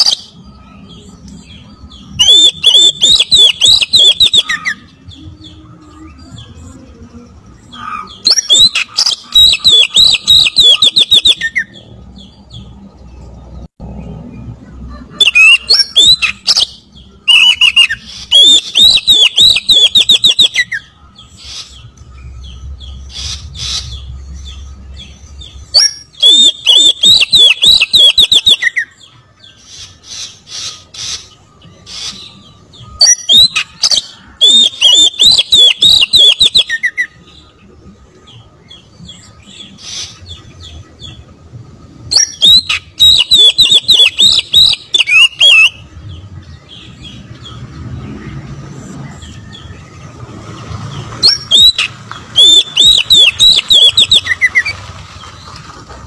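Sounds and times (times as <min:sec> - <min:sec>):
bird singing whistled runs: 0:01.8 - 0:04.9, 0:15.3 - 0:20.9, 0:21.7 - 0:29.0, 0:30.7 - 0:37.1, 0:42.1 - 0:45.9, 0:51.0 - 0:55.7.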